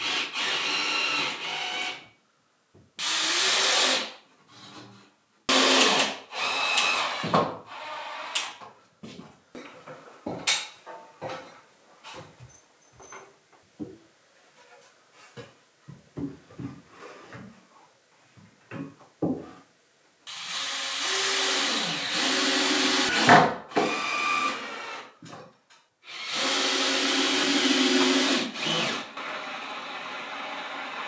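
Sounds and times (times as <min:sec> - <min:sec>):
power drill running: 0:00.0 - 0:02.0, 0:20.3 - 0:23.3, 0:23.9 - 0:25.0, 0:26.1 - 0:31.0.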